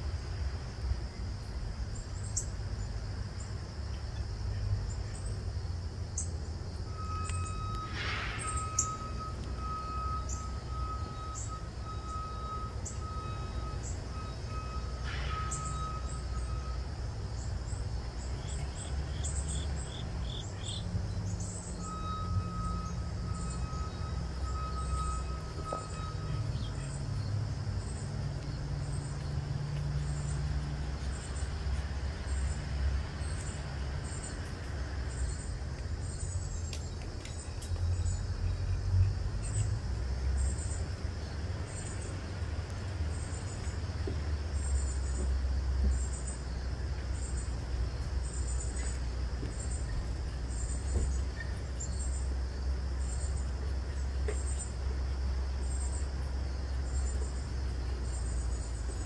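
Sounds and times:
low outdoor rumble: 0.0 - 59.0
faint high double chirp: 6.9 - 16.9, 21.4 - 27.2.

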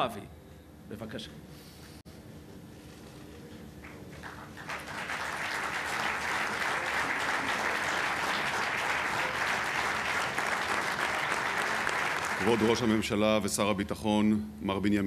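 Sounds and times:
audience applauding: 3.8 - 13.1.

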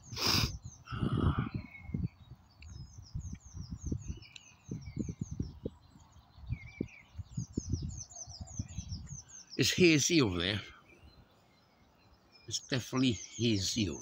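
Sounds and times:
songbirds chirping: 0.0 - 14.0
low rumbling on microphone: 0.6 - 9.2.

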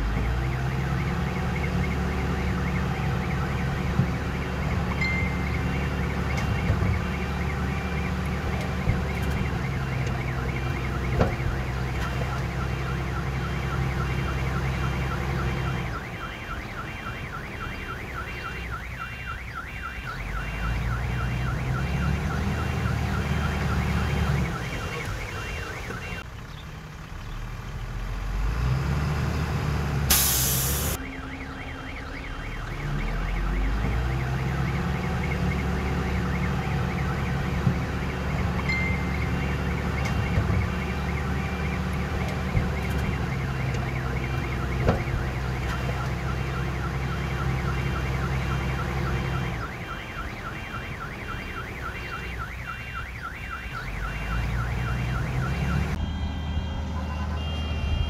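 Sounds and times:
loud hiss: 30.1 - 31.0.

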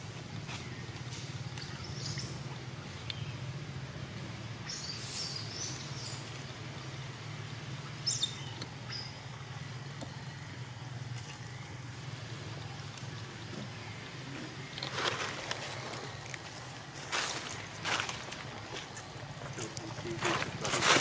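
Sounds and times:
steady low hum: 0.0 - 21.0
animal squeaks and chirps: 4.7 - 6.2, 8.0 - 9.2.

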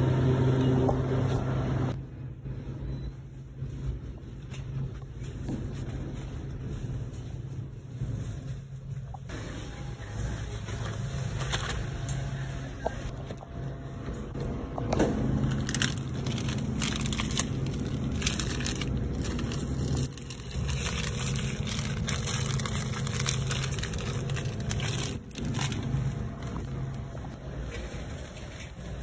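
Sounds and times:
steady low hum: 0.0 - 29.0
shopping cart rattling: 15.2 - 29.0
plastic packages crackling: 15.3 - 28.8.

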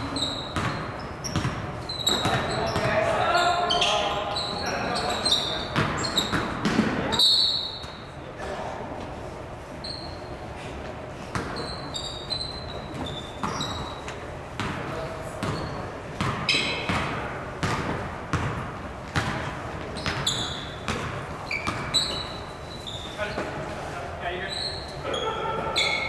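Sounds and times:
sneaker squeaks: 0.0 - 8.2, 9.6 - 26.0
basketball bouncing on wooden floor: 0.4 - 3.0, 5.8 - 7.0, 14.6 - 14.8, 15.4 - 22.3
players' voices: 2.0 - 9.5, 23.1 - 26.0.

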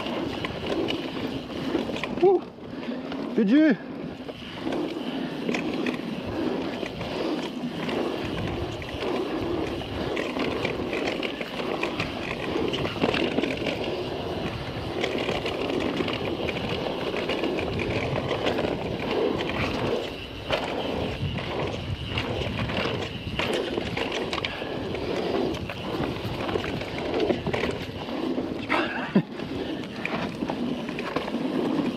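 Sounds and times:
bike rattling over rough ground: 0.0 - 31.9
knobby tyres rolling on dirt: 0.0 - 31.9.

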